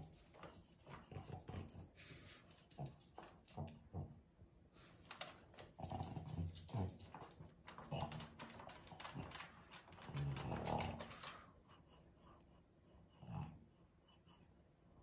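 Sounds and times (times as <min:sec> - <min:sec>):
dog nails clicking on floor: 0:00.0 - 0:04.1, 0:04.8 - 0:11.6.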